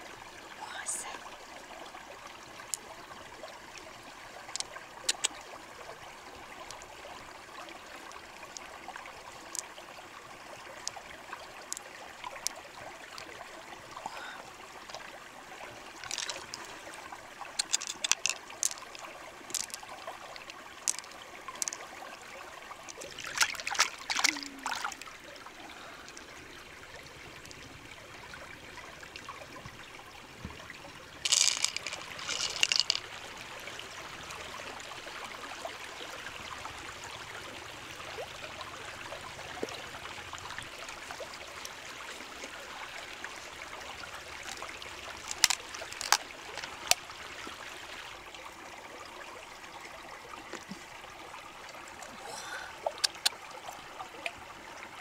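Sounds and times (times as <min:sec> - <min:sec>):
stream running over rocks: 0:00.0 - 0:55.0
pearls clicking together: 0:04.6 - 0:05.4, 0:16.0 - 0:16.7, 0:17.5 - 0:21.9, 0:22.9 - 0:25.0, 0:31.2 - 0:33.1, 0:44.4 - 0:47.0, 0:53.0 - 0:53.4.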